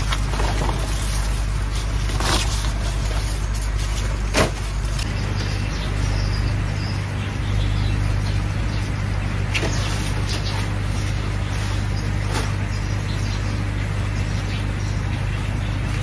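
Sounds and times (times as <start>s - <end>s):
plant stalks and leaves rustling: 0.0s - 6.7s, 9.0s - 13.3s
steady low hum: 0.0s - 16.0s.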